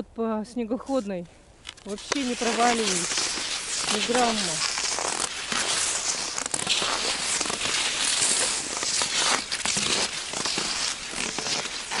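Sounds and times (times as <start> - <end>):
footsteps crunching on frozen snow: 0.8 - 12.0.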